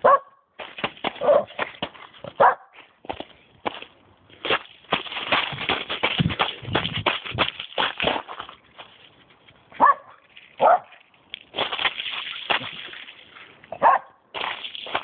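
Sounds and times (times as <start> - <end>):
dog barking: 0.0 - 0.4, 1.2 - 1.6, 2.4 - 2.8, 9.8 - 11.0, 13.7 - 14.2.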